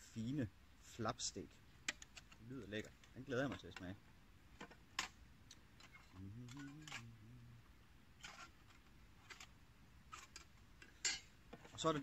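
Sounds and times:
man humming: 0:06.2 - 0:07.7.

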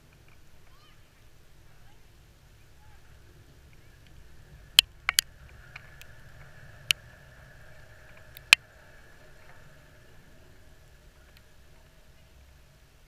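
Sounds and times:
steady low rumble: 0:00.0 - 0:13.0
sharp ticks close to microphone: 0:04.8 - 0:07.1, 0:08.1 - 0:08.6.

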